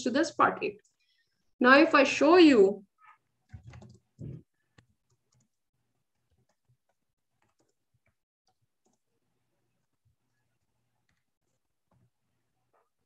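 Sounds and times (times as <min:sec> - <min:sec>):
computer mouse clicks: 0:03.0 - 0:05.6, 0:06.2 - 0:09.1.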